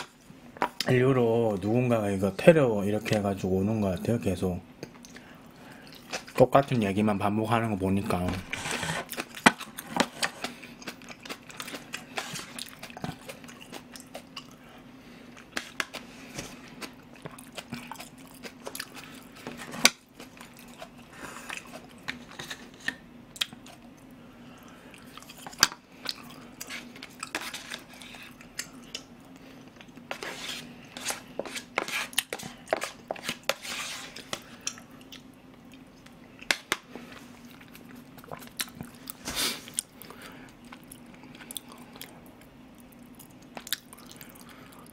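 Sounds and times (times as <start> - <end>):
chewing food: 9.1 - 14.6, 15.3 - 22.4, 23.4 - 30.0, 34.2 - 44.9.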